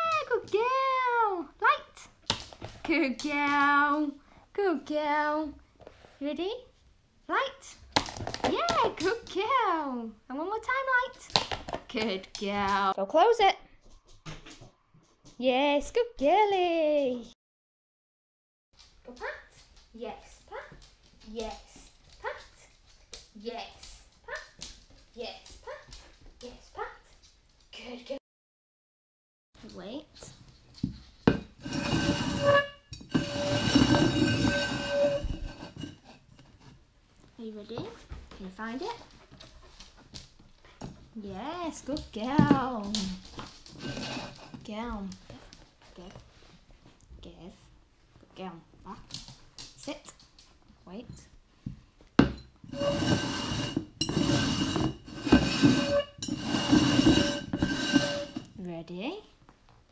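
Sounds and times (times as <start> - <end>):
clay pots scraping on floor: 30.2 - 36.8, 41.7 - 46.6, 51.1 - 58.6.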